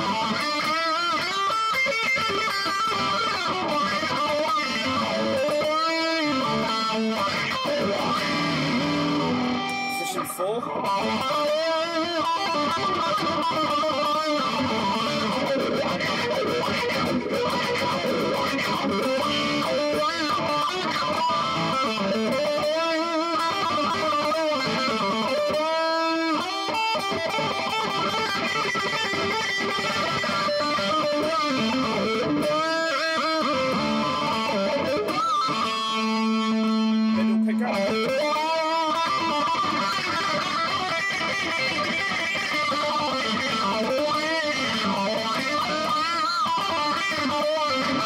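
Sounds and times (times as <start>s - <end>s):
electric guitar with wah pedal: 0.0s - 48.0s.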